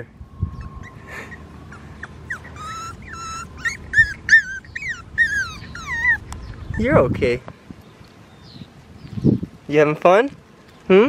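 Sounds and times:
puppy whimpering: 0.5 - 7.1.

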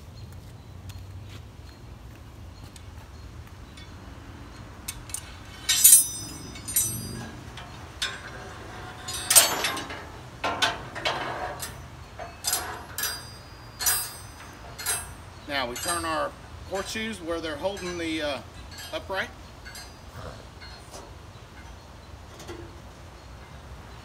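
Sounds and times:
metal hooks clinking and clanking: 4.8 - 22.8.

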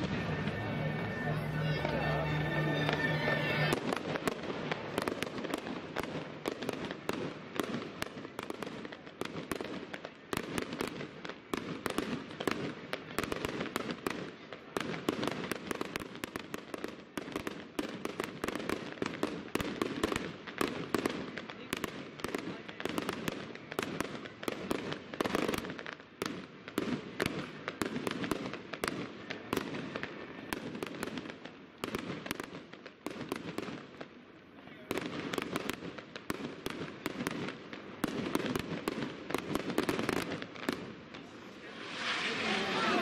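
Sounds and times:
music: 0.0 - 3.8
fireworks cracking and banging: 0.0 - 43.0.

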